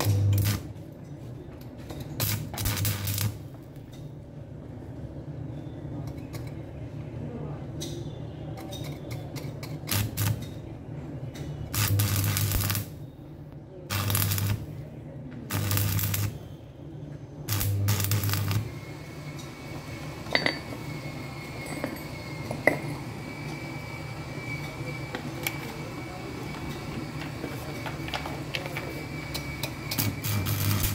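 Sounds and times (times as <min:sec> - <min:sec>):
arc welder crackling and hissing: 0:00.0 - 0:00.8, 0:02.2 - 0:03.8, 0:09.0 - 0:10.5, 0:11.7 - 0:13.0, 0:13.9 - 0:16.5, 0:17.5 - 0:21.4, 0:23.0 - 0:30.9
welding transformer low hum: 0:00.0 - 0:01.0, 0:01.6 - 0:07.6, 0:08.6 - 0:30.9.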